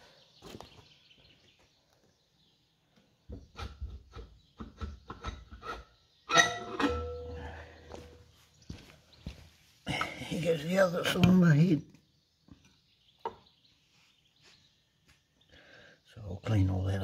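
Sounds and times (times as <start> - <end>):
loud metal clang: 6.3 - 7.4.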